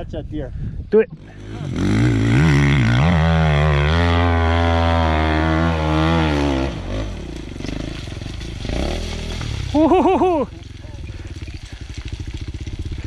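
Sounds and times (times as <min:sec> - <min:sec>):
dirt bike engine pulling hard: 0:01.1 - 0:13.0.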